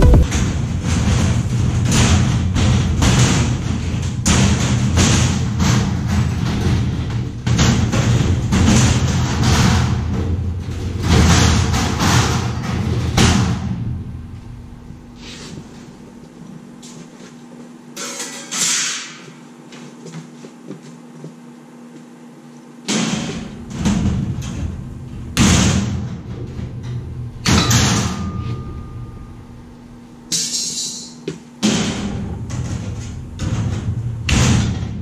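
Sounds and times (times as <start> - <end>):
steady low hum: 13.1 - 17.8, 20.4 - 30.3
sheet metal thuds and rattles: 31.6 - 35.0.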